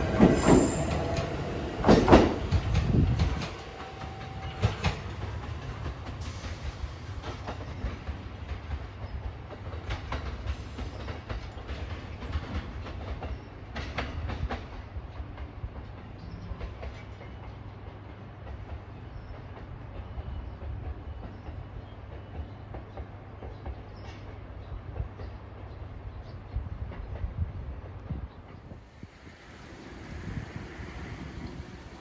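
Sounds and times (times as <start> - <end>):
train wheels clacking: 0.0 - 25.2
electric train rumbling: 0.0 - 32.0.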